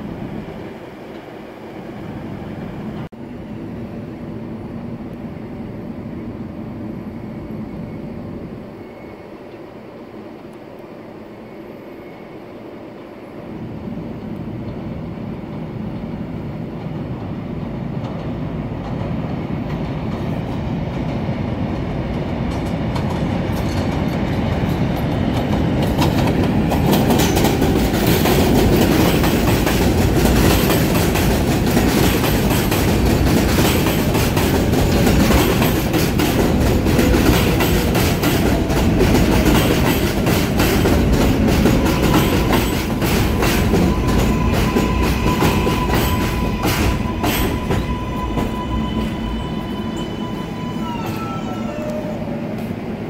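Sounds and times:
train wheel and rail clatter: 14.1s - 53.0s
train whine falling in pitch: 41.1s - 52.7s.

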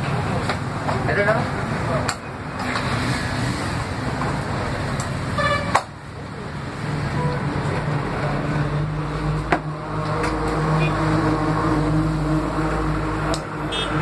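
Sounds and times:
road traffic: 0.0s - 14.0s
car horn toot: 5.4s - 5.8s, 13.7s - 14.0s.

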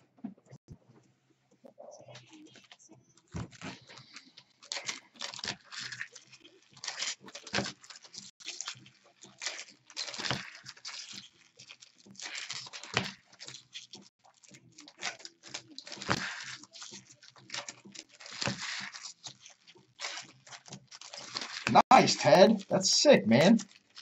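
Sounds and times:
wrapper tearing and crinkling: 3.4s - 22.6s, 23.4s - 24.0s
cards being handled: 14.9s - 24.0s.

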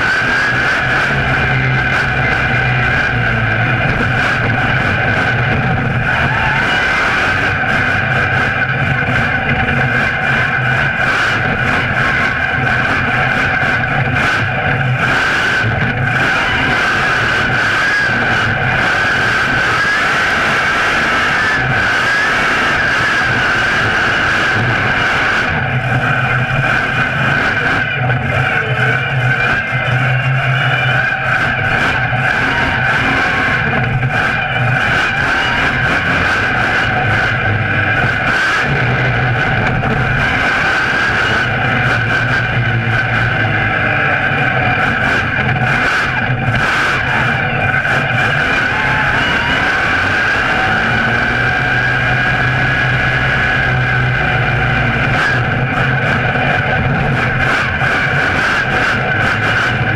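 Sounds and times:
monster truck engine drone: 0.0s - 59.9s.

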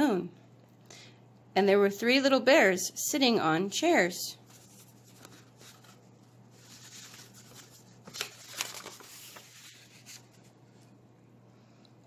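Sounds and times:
book pages turning: 4.4s - 11.0s
paper flicks: 6.6s - 10.4s.

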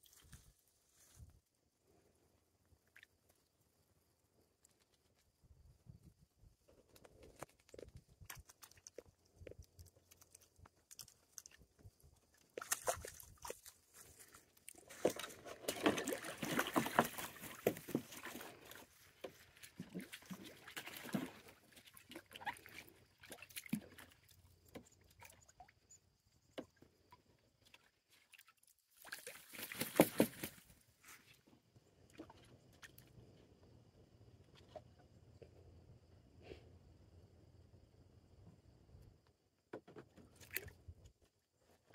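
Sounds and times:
geese splashing in water: 14.8s - 24.2s, 27.7s - 30.7s.

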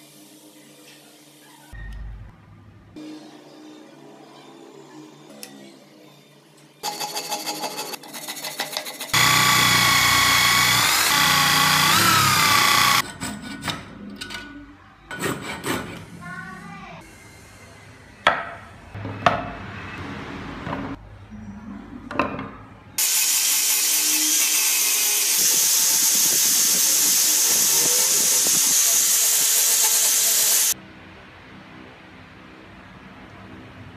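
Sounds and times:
angle grinder sanding: 6.8s - 13.0s, 23.0s - 30.8s
hand saw cutting wood: 6.8s - 13.1s, 15.2s - 16.0s
power tool whining: 9.1s - 13.0s, 23.0s - 30.8s.

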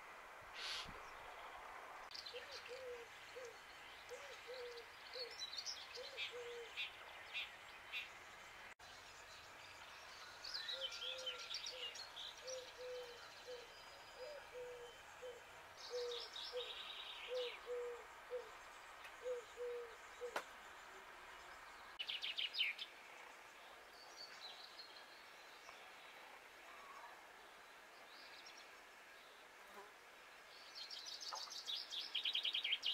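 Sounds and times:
songbirds twittering: 0.6s - 29.5s, 30.2s - 32.9s
dove cooing: 2.3s - 5.3s, 6.0s - 6.8s, 11.0s - 16.7s, 17.3s - 18.5s, 19.2s - 20.4s.

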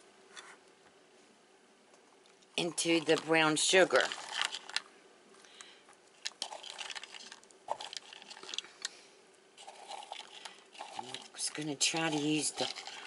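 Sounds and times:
nuts clicking and rustling: 2.3s - 9.0s, 9.6s - 13.0s.

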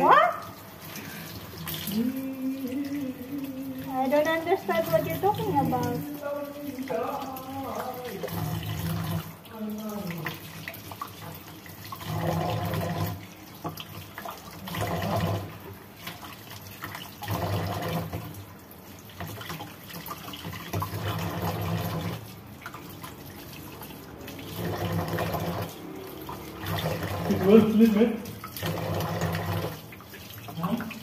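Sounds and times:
tap water splashing on hand: 0.1s - 31.0s.

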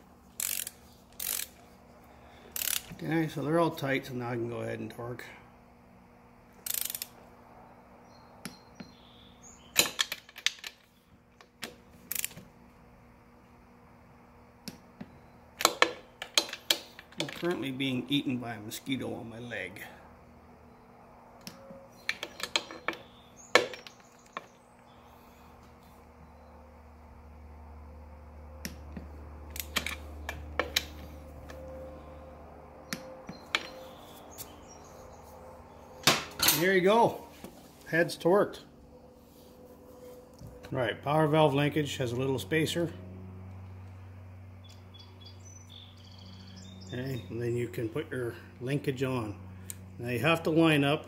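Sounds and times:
low steady hum: 0.0s - 51.0s
socket wrench ratcheting: 0.4s - 1.6s, 2.6s - 2.9s, 6.6s - 7.2s, 12.1s - 12.4s.

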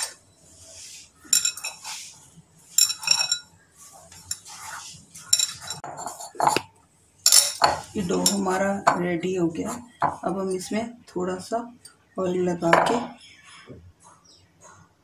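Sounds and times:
metal bangles clinking: 1.3s - 2.1s, 2.7s - 4.6s, 5.2s - 6.1s, 7.2s - 8.6s.

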